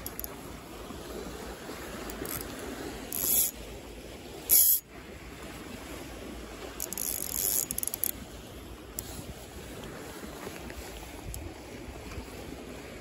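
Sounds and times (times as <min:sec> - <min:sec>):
waves: 0:00.0 - 0:13.0
wind: 0:00.0 - 0:13.0
gloved hands rustling on reel: 0:03.1 - 0:03.5, 0:06.8 - 0:08.1.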